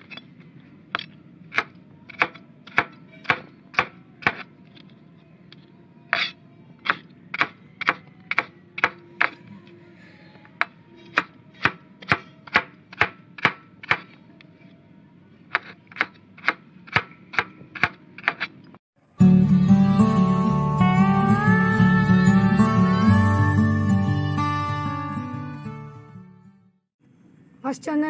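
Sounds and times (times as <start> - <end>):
knife chopping on cutting board: 1.5 - 4.5, 6.1 - 9.4, 10.6 - 14.2, 15.5 - 18.5.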